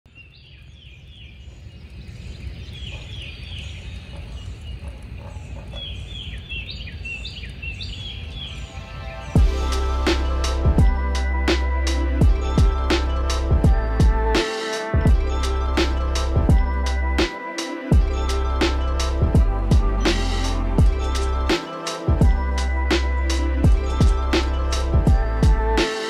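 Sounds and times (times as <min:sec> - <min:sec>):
deep drum hits: 0:09.4 - 0:14.4, 0:18.0 - 0:20.2.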